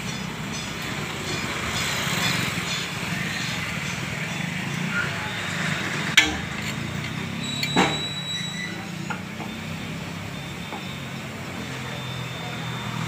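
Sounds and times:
street background noise: 0.0 - 13.0
ringing metal clank: 6.1 - 9.2.

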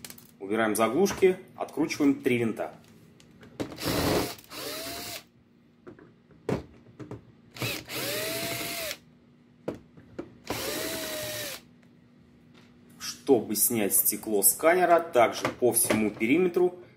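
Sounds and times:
cordless drill motor whining: 3.8 - 5.2, 7.6 - 9.0, 10.4 - 11.6.

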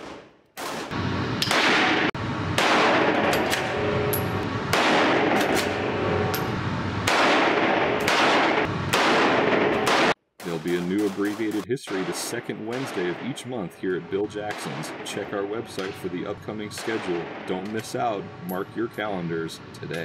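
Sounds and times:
rifle shots echoing indoors: 0.0 - 3.9, 4.7 - 6.2, 7.0 - 13.4, 14.4 - 16.1, 16.7 - 17.7.

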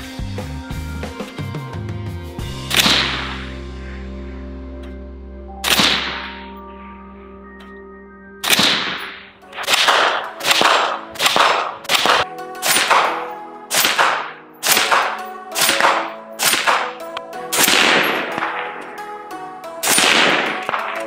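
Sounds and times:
background music: 0.0 - 21.0
suppressed rifle shots: 2.7 - 3.6, 5.6 - 6.4, 8.4 - 18.9, 19.8 - 21.0.

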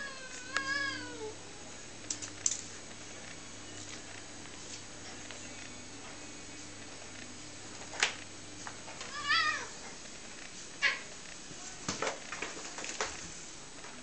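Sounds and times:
cat meowing: 0.0 - 1.4, 9.1 - 9.8.

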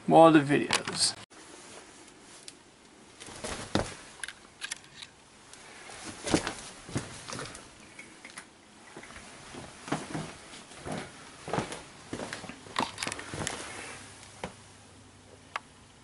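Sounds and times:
footsteps: 3.2 - 4.1, 5.9 - 7.7, 9.0 - 14.6.

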